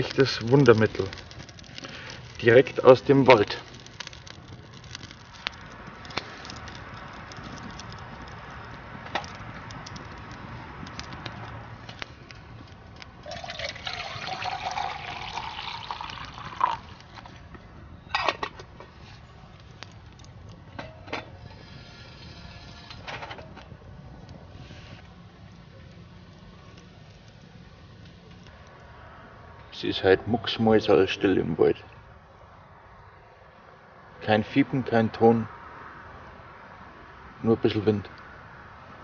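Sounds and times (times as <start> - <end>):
water pouring into a pot: 0.0 - 5.6, 13.2 - 17.3
wood fire crackling: 0.0 - 33.1.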